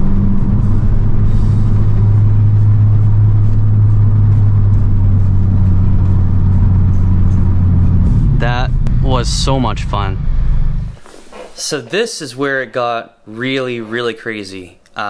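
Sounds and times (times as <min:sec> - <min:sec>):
car engine droning: 0:00.0 - 0:11.0
road and tyre noise: 0:00.0 - 0:11.0.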